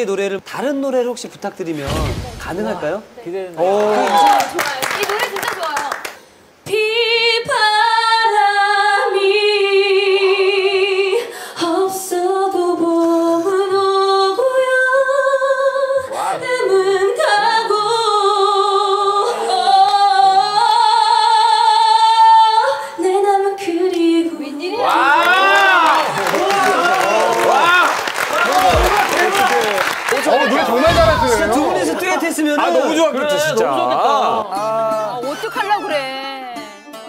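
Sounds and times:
woman singing a ballad: 6.6 - 24.8.

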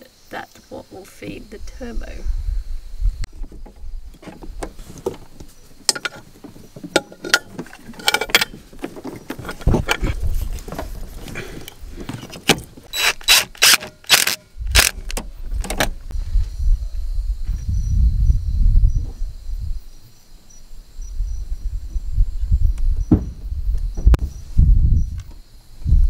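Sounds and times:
tools clicking and scraping on metal: 6.9 - 10.1.

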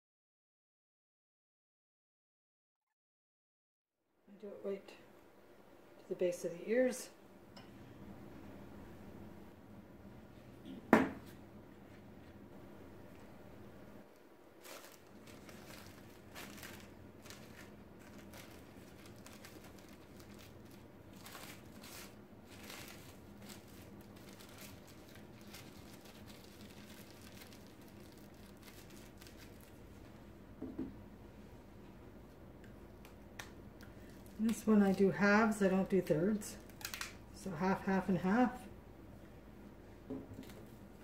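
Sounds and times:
faint crinkling and rustling wrap: 14.0 - 30.3, 31.3 - 37.4, 40.2 - 41.0.

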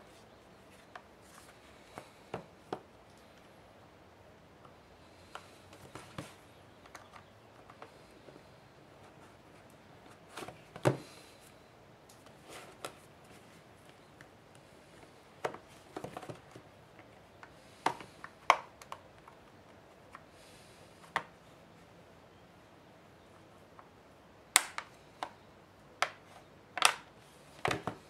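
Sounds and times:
plastic clips snapping: 24.6 - 25.4, 26.8 - 27.9.

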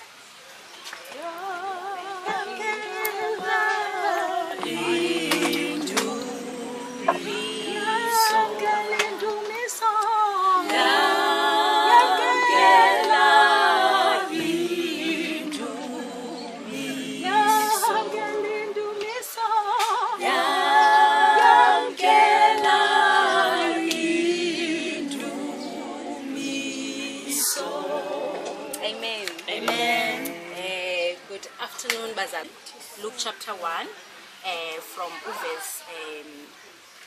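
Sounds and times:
group singing a cappella: 1.2 - 30.7.

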